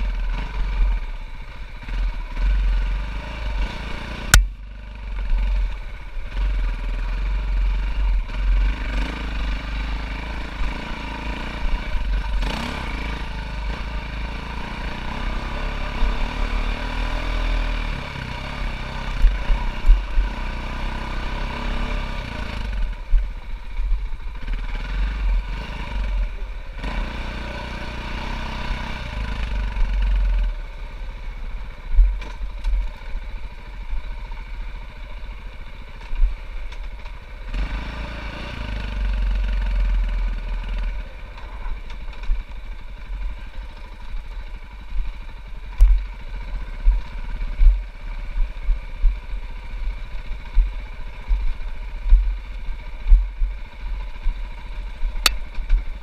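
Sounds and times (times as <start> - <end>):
dirt bike engine revving: 1.8 - 23.0, 24.4 - 30.6, 37.4 - 41.8.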